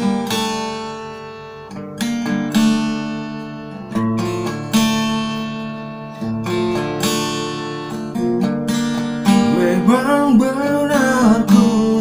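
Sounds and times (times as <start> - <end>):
acoustic guitar strumming: 0.0 - 12.0
man singing: 9.4 - 12.0.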